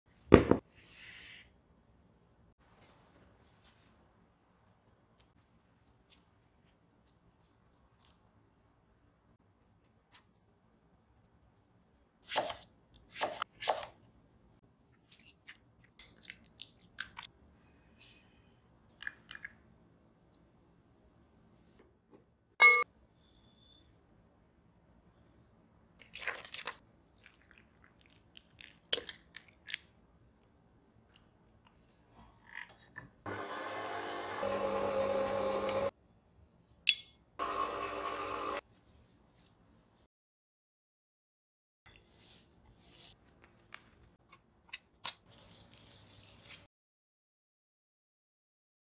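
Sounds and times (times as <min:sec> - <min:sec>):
glass beaker clinks: 0:22.6 - 0:22.8
electric mixer whirring: 0:33.3 - 0:35.9, 0:37.4 - 0:38.6.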